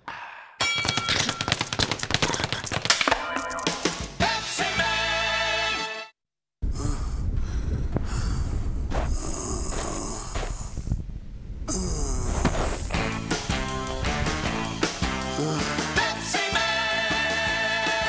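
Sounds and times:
man breathing heavily: 0:00.0 - 0:00.6, 0:06.6 - 0:11.0, 0:11.7 - 0:13.3
jingle: 0:02.9 - 0:04.2
steady low rumble: 0:06.6 - 0:14.8.

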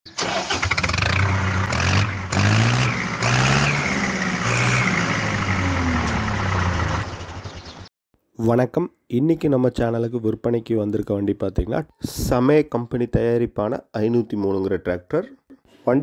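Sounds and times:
engine revving: 0:00.2 - 0:07.9.

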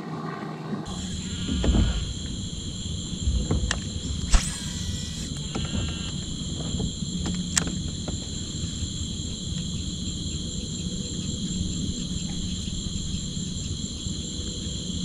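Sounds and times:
low rumbling noise: 0:00.9 - 0:08.5
high-pitched insect chorus: 0:00.9 - 0:15.0
sharp clicks or knocks: 0:04.3 - 0:05.4.

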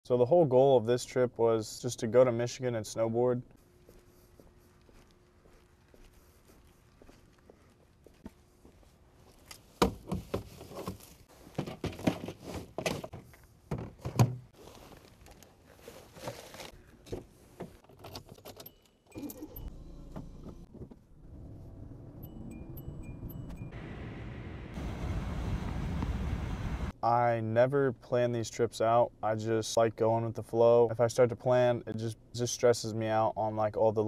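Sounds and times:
car running hum: 0:19.4 - 0:27.0.

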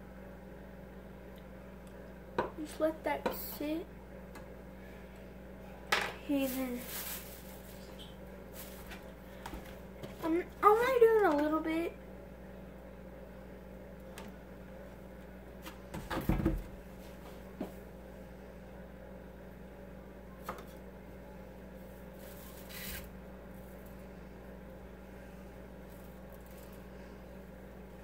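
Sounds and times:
steady low hum: 0:00.0 - 0:28.0
plastic rustle: 0:06.3 - 0:09.2, 0:22.1 - 0:23.8.

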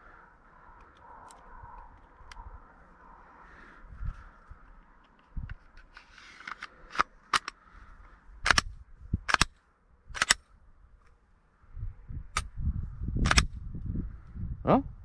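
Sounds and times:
metallic clicks and snaps: 0:05.0 - 0:07.6, 0:08.4 - 0:09.6, 0:10.2 - 0:10.5, 0:13.3 - 0:13.6.

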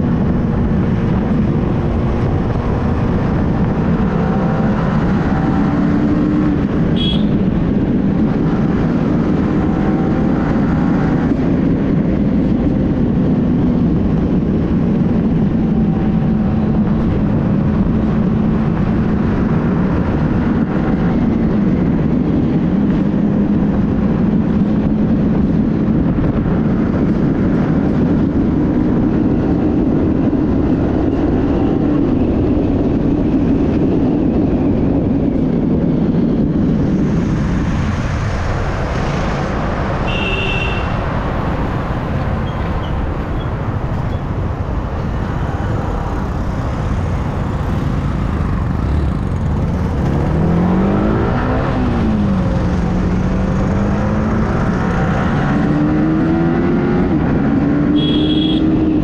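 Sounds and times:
wind rushing: 0:00.0 - 0:58.0.

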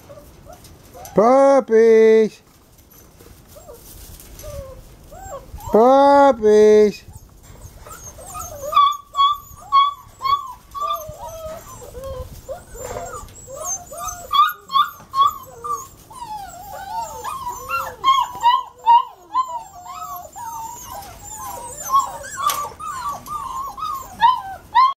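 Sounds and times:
puppies whining and yipping: 0:00.0 - 0:01.2, 0:02.9 - 0:05.9, 0:07.1 - 0:25.0.

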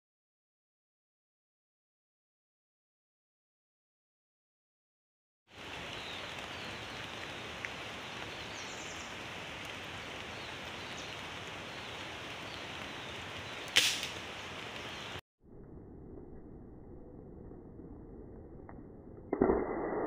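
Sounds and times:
forest ambience hiss: 0:05.5 - 0:15.2
air rifle shot: 0:13.8 - 0:14.2.

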